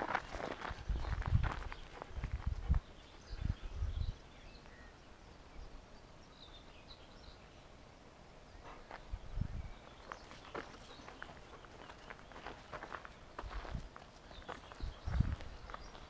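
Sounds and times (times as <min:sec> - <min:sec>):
footsteps on gravel: 0:00.0 - 0:02.8, 0:10.0 - 0:16.0.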